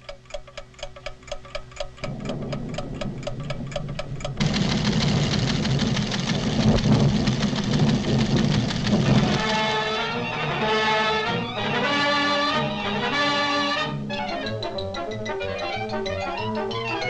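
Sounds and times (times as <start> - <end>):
seismograph mechanical ticking: 0.0 - 10.7
low rumble: 1.9 - 9.6
loud dense rumble of tremor: 2.0 - 10.1.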